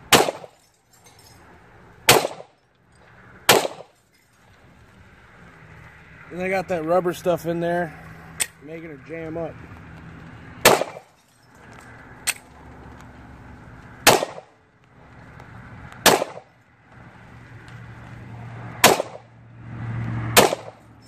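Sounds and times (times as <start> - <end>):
pistol shots: 0.1 - 0.6, 2.1 - 2.5, 3.5 - 3.9, 10.6 - 11.1, 14.0 - 14.5, 16.0 - 16.5, 18.8 - 19.2, 20.4 - 20.8.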